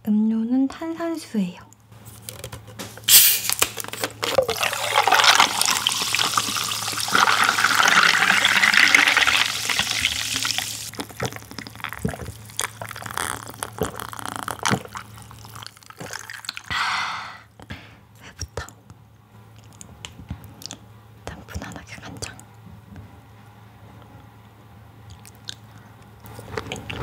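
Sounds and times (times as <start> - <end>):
fizzing and crackling: 3.2 - 16.7
sparkling water pouring into glass: 4.4 - 10.9.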